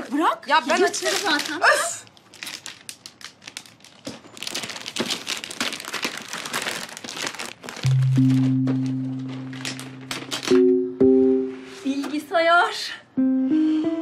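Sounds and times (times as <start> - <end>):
wrapping paper tearing and crinkling: 0.0 - 10.6
music with low held notes: 7.8 - 11.9, 13.2 - 14.0.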